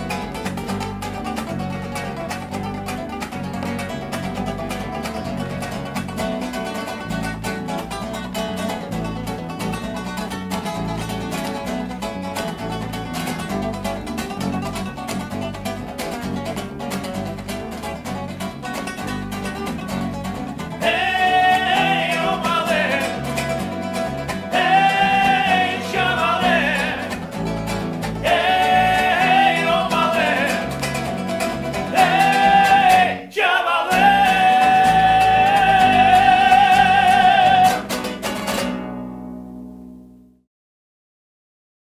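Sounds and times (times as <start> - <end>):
electric bass: 0.0 - 33.3, 33.9 - 40.4
acoustic guitars strumming: 0.0 - 40.4
man singing with vibrato: 20.8 - 23.6, 24.4 - 27.2, 28.2 - 31.1, 31.8 - 38.0.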